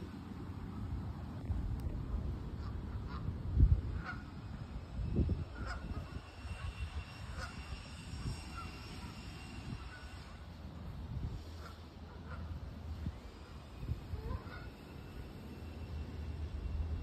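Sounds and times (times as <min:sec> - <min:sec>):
wind rumbling on microphone: 0:00.0 - 0:14.9
geese honking: 0:02.6 - 0:03.3, 0:04.0 - 0:04.4, 0:05.5 - 0:09.2, 0:11.5 - 0:12.6, 0:13.5 - 0:15.1.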